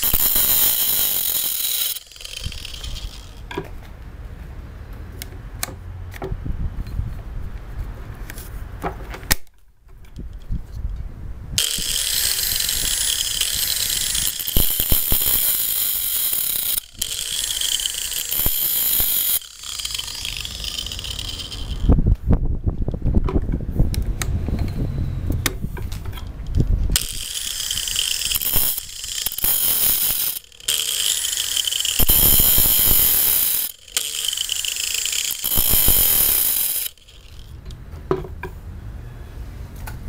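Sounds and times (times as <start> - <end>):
angle grinder grinding hiss: 0.0 - 3.4, 11.6 - 21.9, 27.0 - 37.5.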